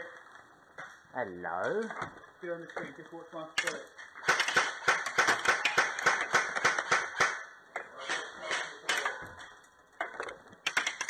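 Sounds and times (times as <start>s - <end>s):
airsoft gunfire: 3.6s - 7.5s.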